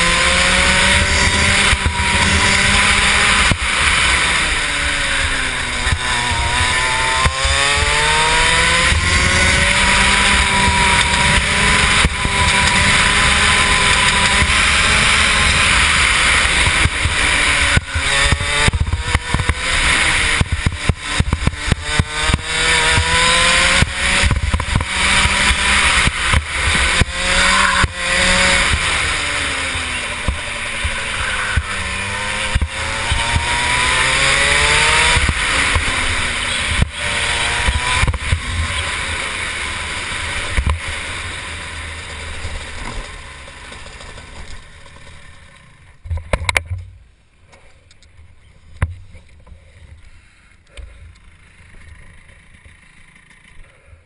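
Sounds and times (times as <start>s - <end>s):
kart engine revving: 0.0s - 46.8s, 50.7s - 53.9s
engine pops and misfires: 5.2s - 38.9s, 39.9s - 48.2s.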